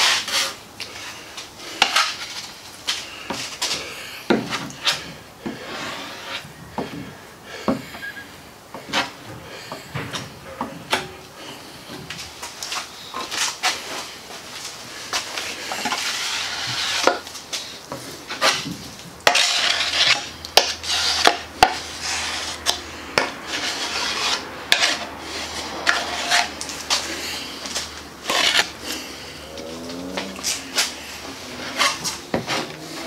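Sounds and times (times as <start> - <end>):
plastic spreader scraping and clacking: 18.0 - 27.1, 29.5 - 33.0.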